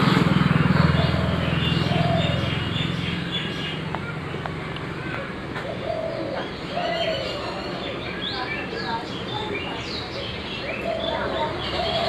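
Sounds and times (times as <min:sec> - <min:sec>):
vehicle engine hum: 0:00.0 - 0:08.1
dove cooing: 0:00.9 - 0:02.9, 0:05.1 - 0:08.1, 0:10.5 - 0:12.0.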